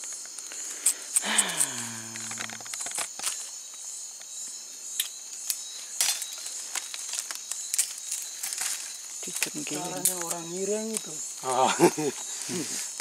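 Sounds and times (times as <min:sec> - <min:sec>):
twigs snapping and rustling: 0:00.0 - 0:03.5, 0:05.0 - 0:11.5
insect chorus buzzing trill: 0:00.0 - 0:13.0.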